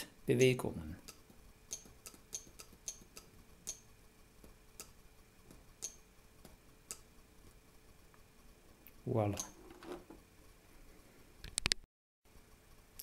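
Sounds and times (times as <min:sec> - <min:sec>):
button and relay clicks: 0:00.4 - 0:03.9.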